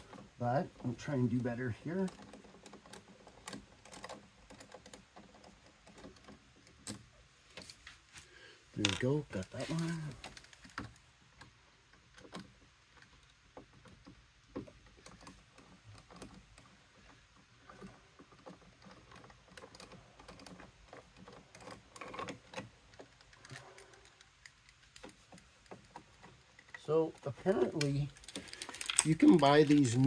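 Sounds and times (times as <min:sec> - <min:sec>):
hand tool clicks and scrapes: 0:14.7 - 0:30.0
plastic connector handling: 0:27.5 - 0:30.0.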